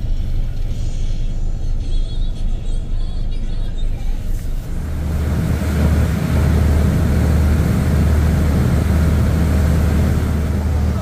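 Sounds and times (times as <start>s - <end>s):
ship engines droning: 1.4s - 11.0s
wind and water rushing: 4.6s - 11.0s.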